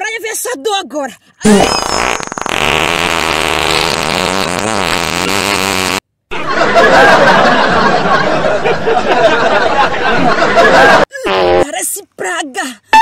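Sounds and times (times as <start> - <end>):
buzzing fart sound effect: 1.5 - 6.1, 11.3 - 11.7.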